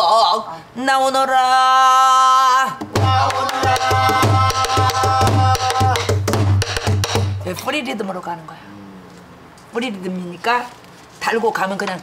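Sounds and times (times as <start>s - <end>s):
barrel drum beats: 2.8s - 7.6s.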